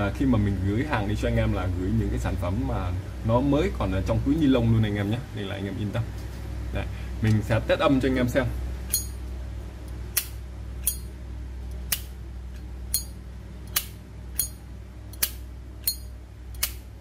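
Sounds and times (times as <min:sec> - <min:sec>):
lighter lid clicking open and shut: 0:13.7 - 0:16.8.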